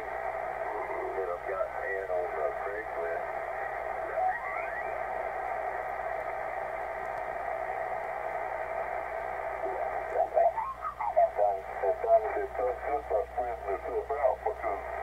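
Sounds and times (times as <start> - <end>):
radio static hiss: 0.0 - 15.0
garbled radio voice: 9.6 - 15.0.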